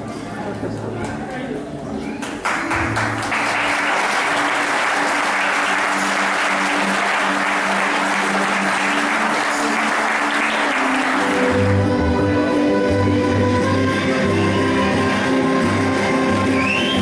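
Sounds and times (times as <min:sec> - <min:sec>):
soft music: 0:00.0 - 0:17.0
crowd applauding: 0:02.2 - 0:12.3, 0:14.1 - 0:17.0.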